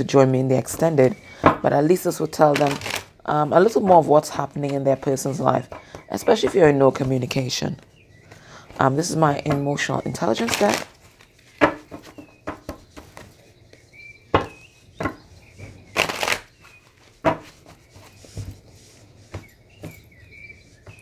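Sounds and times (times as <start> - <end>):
cards being shuffled: 2.4 - 3.1, 10.4 - 13.4, 15.9 - 20.0.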